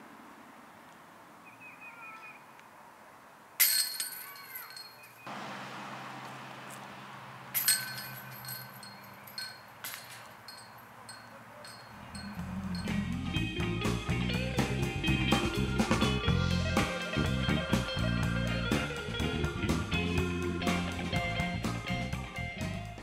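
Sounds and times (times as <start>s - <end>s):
discs striking metal chains: 3.6s - 5.3s, 7.5s - 13.1s.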